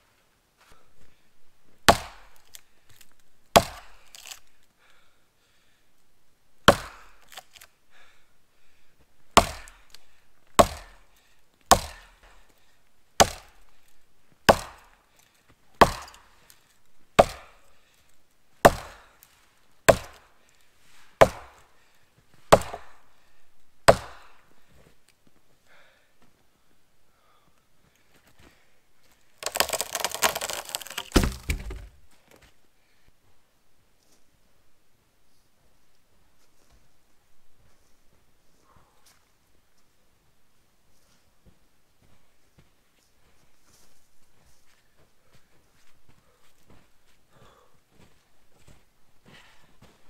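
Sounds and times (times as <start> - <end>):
axe chopping wood: 1.9 - 2.6, 3.5 - 4.4, 6.7 - 7.7, 9.4 - 9.9, 10.6 - 11.0, 11.7 - 12.1, 13.2 - 13.6, 14.5 - 14.9, 15.8 - 16.3, 17.2 - 17.6, 18.6 - 19.1, 19.9 - 20.3, 21.2 - 21.6, 22.5 - 23.0, 23.9 - 24.3, 29.4 - 32.0.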